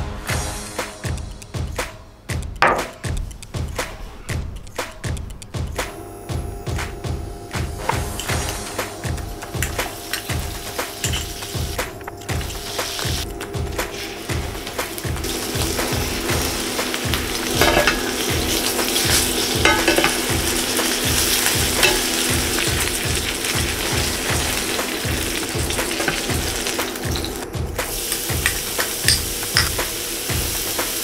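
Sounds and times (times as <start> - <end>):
chicken sizzling in a skillet: 7.6 - 31.0.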